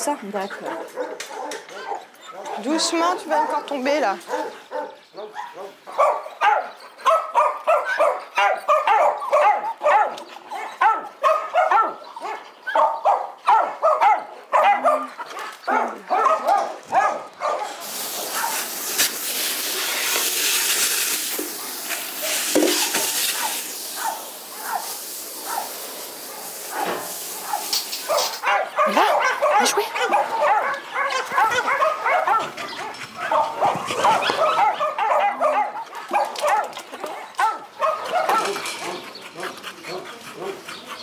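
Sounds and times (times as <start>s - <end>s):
dogs barking rapidly: 0.2s - 18.9s, 21.5s - 41.0s
hose nozzle spraying water: 17.8s - 28.5s.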